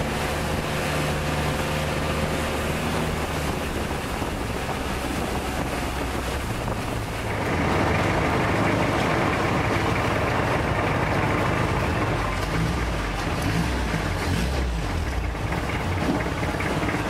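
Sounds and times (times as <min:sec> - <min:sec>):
wind on microphone: 0:00.0 - 0:11.2
boat engine running: 0:00.0 - 0:17.0
water rushing along hull: 0:00.0 - 0:17.0.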